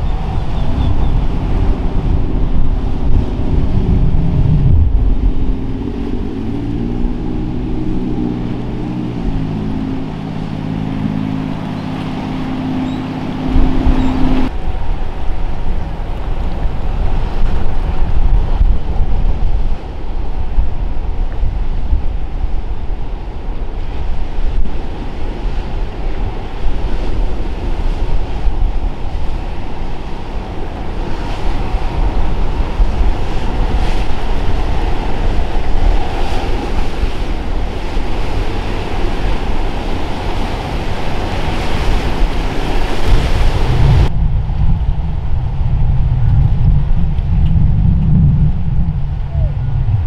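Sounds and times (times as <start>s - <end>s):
boat engines running: 0.0s - 21.4s, 22.0s - 44.1s
deep steady low rumble: 0.0s - 24.7s, 43.0s - 50.0s
waves splashing: 0.0s - 44.1s
wind buffeting microphone: 0.0s - 50.0s.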